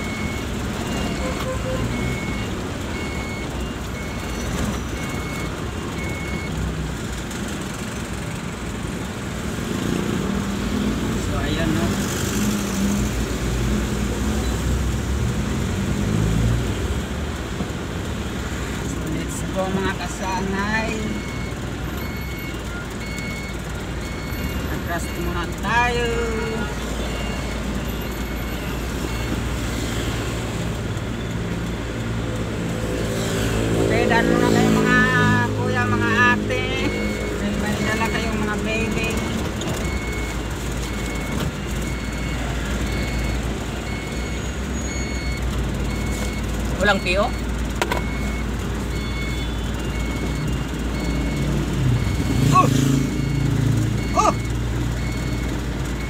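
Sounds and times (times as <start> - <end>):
truck reversing alarm beeping: 0.0 - 7.2, 18.7 - 56.0
truck engine running: 0.0 - 9.6, 20.6 - 32.7, 34.4 - 56.0.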